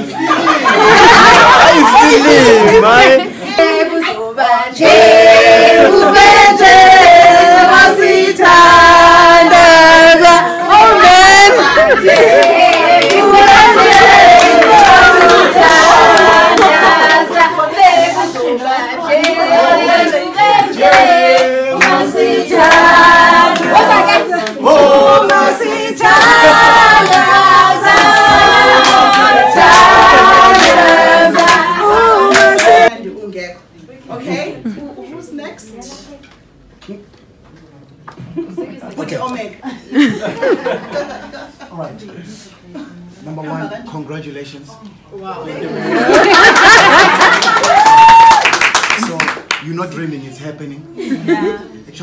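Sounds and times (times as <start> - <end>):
choir singing held notes: 3.2 - 32.9
hand claps: 46.2 - 49.7.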